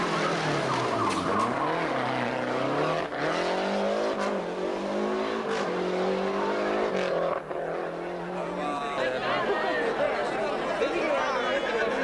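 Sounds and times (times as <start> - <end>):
rally car engine accelerating hard: 0.0 - 8.4.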